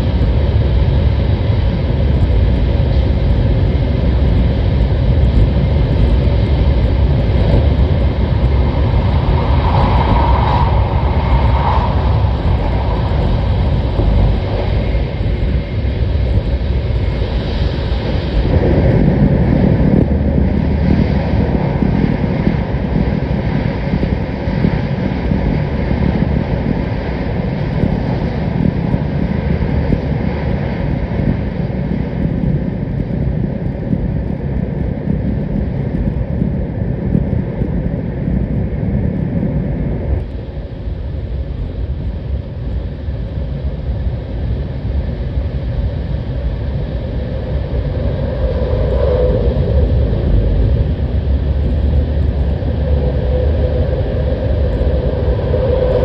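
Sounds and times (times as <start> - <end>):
deep rumble: 0.0 - 56.0
train rushing roar: 3.7 - 24.4.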